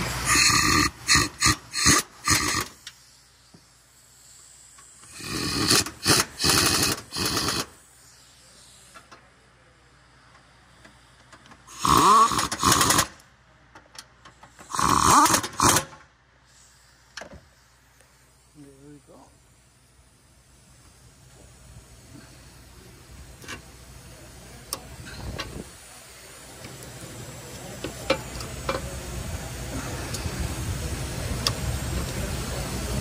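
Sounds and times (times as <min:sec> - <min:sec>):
ratchet wrench ratcheting: 0:00.3 - 0:03.0, 0:04.8 - 0:07.8, 0:11.7 - 0:13.2, 0:14.4 - 0:16.0.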